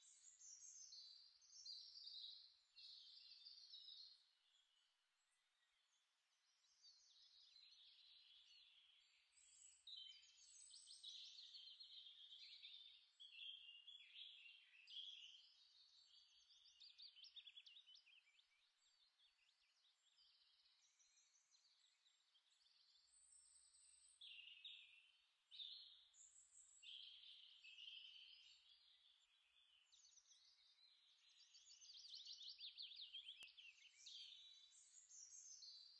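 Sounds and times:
faint birds chirping: 0.0 - 35.9.

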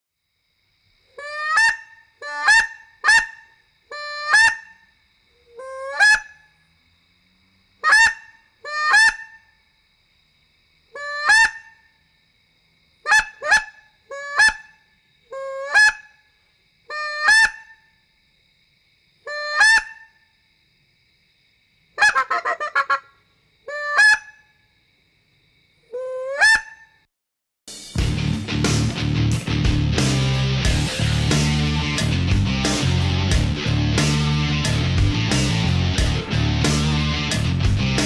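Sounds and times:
goose call honking: 1.2 - 4.8, 5.6 - 6.4, 7.8 - 9.4, 11.0 - 11.8, 13.1 - 14.7, 15.4 - 16.1, 16.9 - 17.8, 19.3 - 20.1, 22.0 - 23.1, 23.7 - 24.4.

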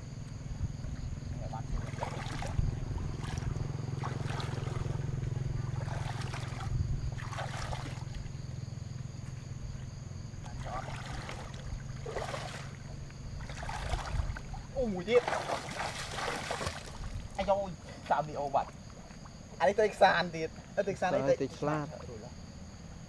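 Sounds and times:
steady low rumble: 0.0 - 12.0
legs wading through water: 0.2 - 21.0.

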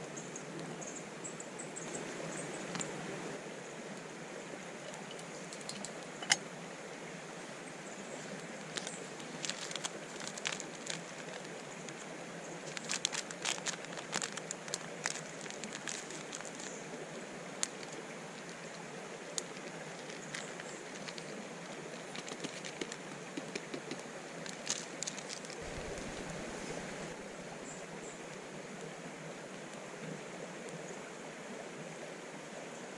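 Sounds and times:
creek flowing: 0.0 - 32.9
wood fire crackling and popping: 22.1 - 27.6.

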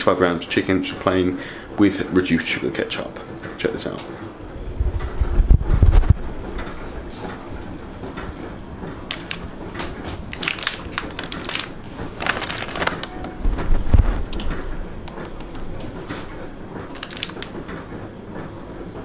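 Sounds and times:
plastic pouch crinkling: 9.0 - 13.3, 16.9 - 17.6.

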